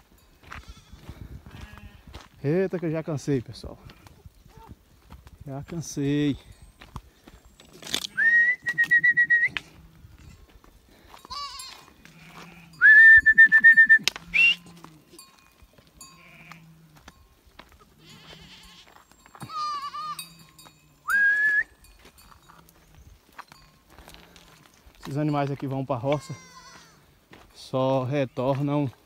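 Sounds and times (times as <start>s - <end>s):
goats bleating: 0.4s - 2.3s, 9.7s - 12.9s, 16.0s - 20.4s, 26.0s - 27.1s
herder whistling: 8.1s - 9.7s, 12.8s - 14.8s, 21.0s - 21.9s.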